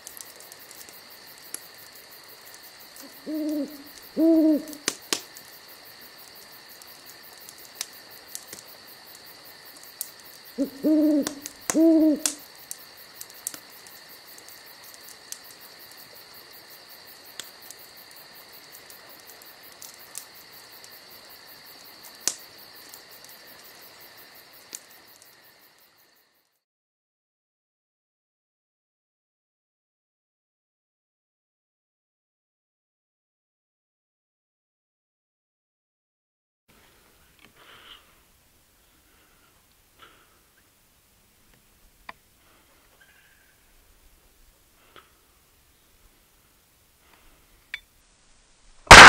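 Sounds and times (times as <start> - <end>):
night insects chorus: 0.0 - 26.6
owl hooting: 3.0 - 4.9, 10.6 - 12.4.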